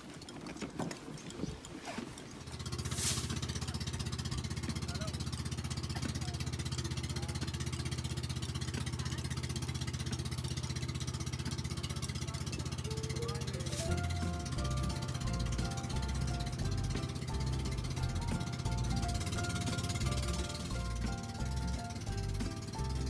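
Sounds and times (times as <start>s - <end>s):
boat engine droning: 0.0s - 23.0s
short hissing whoosh: 2.8s - 3.5s
music: 12.2s - 23.0s.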